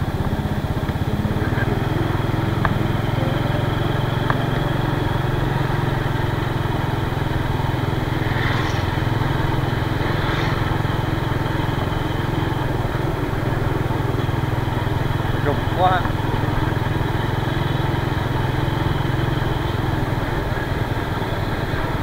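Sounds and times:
scooter engine running: 0.0 - 22.0
brief hissing: 8.2 - 9.2.

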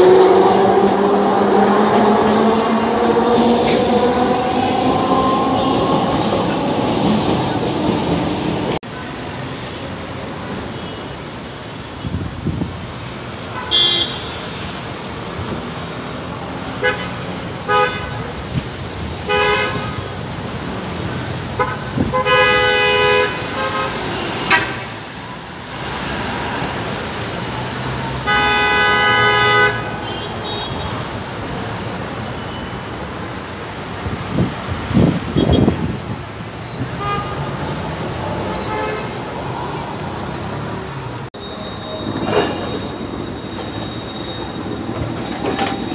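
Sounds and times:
tram rolling past: 0.0 - 13.5, 14.5 - 22.1, 23.3 - 45.9
street traffic noise: 0.0 - 45.9
vehicle horns honking: 13.5 - 14.6, 16.8 - 18.3, 19.2 - 20.1, 21.6 - 25.0, 27.8 - 31.0, 36.8 - 37.6.

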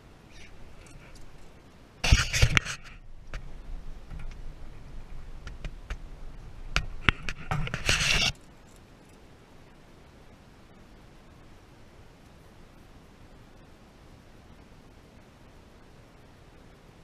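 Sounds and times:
scraping and rubbing in boat: 2.0 - 3.5, 7.0 - 8.4.

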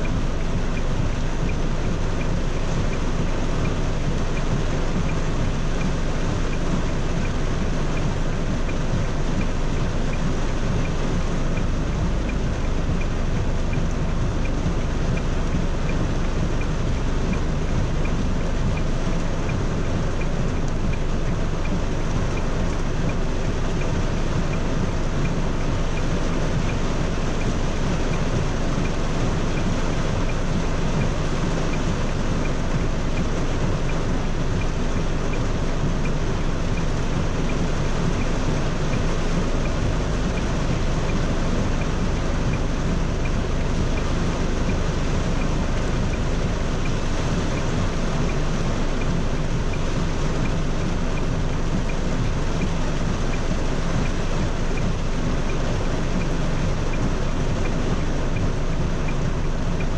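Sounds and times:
heavy rain on a car: 0.0 - 59.9.

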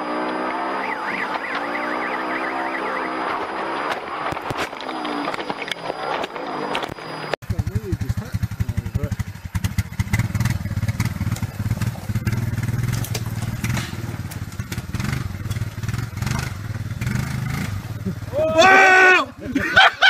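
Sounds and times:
atv engine chugging at low revs: 7.4 - 19.8.

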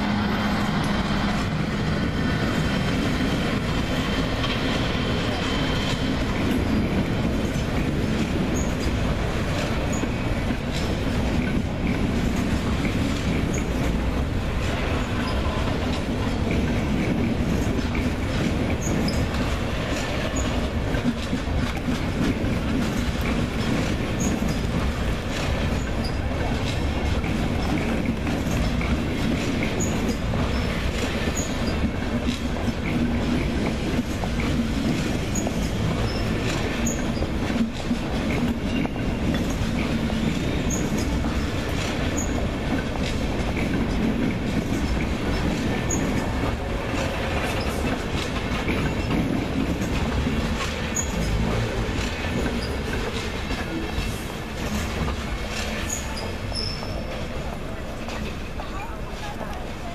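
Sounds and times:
wheels clattering over rail joints: 0.0 - 59.9
high wheel squeals: 51.0 - 51.4, 55.8 - 57.1.

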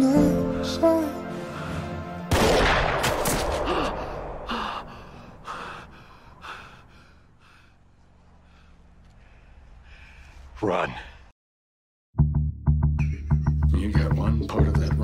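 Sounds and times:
soft music: 0.0 - 2.3, 12.2 - 15.0
man gasping: 3.6 - 7.9.

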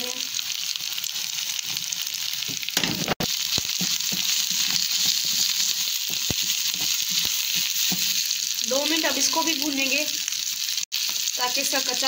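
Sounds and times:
spices sizzling in hot oil: 0.0 - 12.0
spoon scraping and knocking pan: 2.5 - 8.4.

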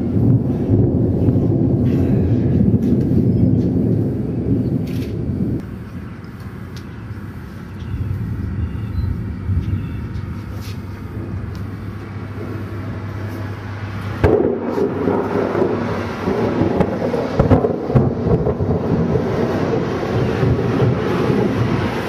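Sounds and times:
steady low hum: 0.0 - 22.0
thunder rumbling: 0.0 - 22.0.

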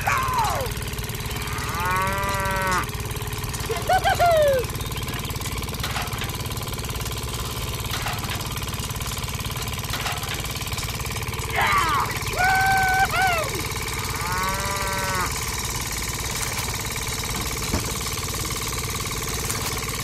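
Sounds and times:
small engine running: 0.0 - 20.0
cow mooing: 1.4 - 2.9, 14.0 - 15.4.

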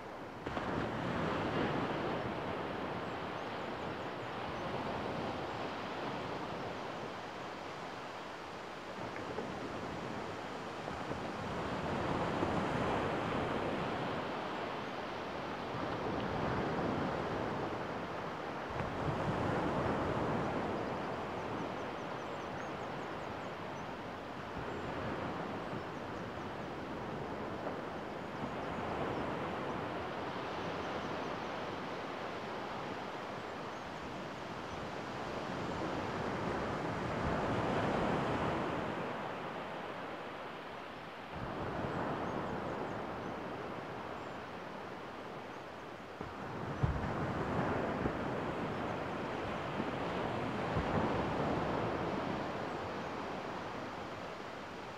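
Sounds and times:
wind on microphone: 46.2 - 54.9.

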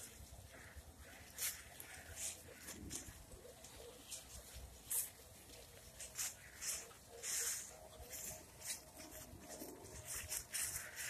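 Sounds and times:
dry leaves rustling and crunching: 0.0 - 11.0
footsteps through leaves: 0.0 - 11.0.

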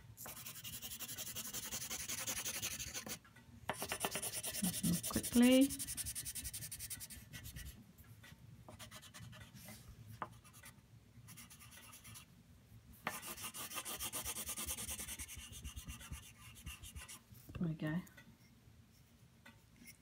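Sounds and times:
crayon scratching on paper: 0.2 - 3.2, 3.8 - 7.8, 13.1 - 17.2.

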